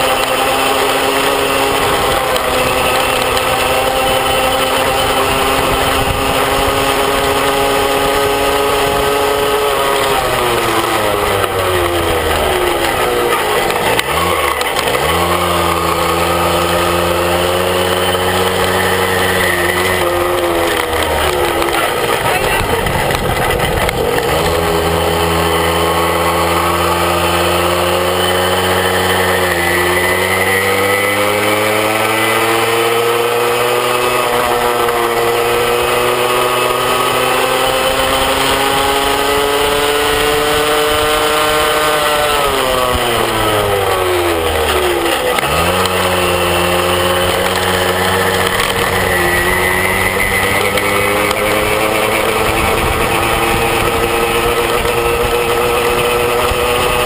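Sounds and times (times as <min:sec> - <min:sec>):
moped engine running: 0:00.0 - 0:57.0.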